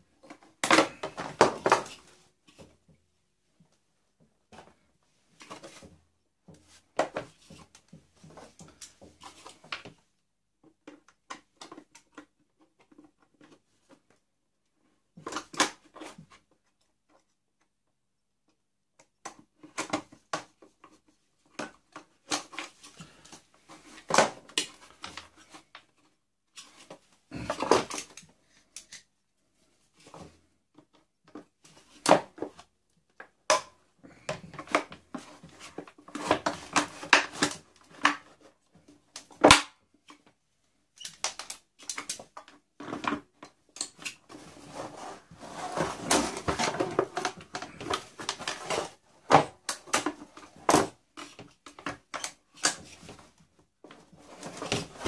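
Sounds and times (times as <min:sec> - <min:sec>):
tool scraping: 0:44.3 - 0:47.3.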